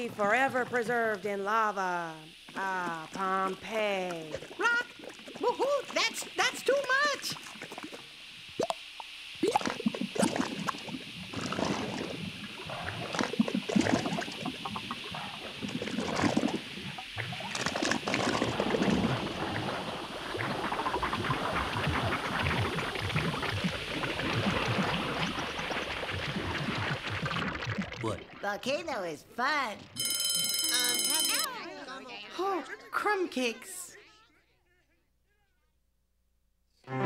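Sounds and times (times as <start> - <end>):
thick liquid bubbling and gurgling: 2.3 - 28.6.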